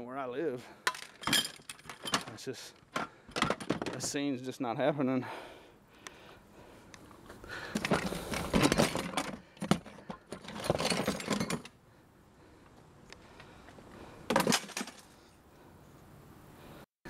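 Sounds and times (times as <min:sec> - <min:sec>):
metal parts clattering in plastic tote: 0:00.9 - 0:02.4, 0:03.0 - 0:04.2, 0:07.8 - 0:11.7, 0:14.3 - 0:15.0.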